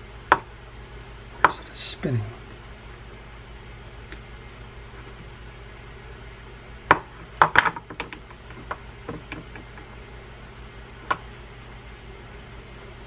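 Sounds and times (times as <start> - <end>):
low hum: 0.0 - 7.3.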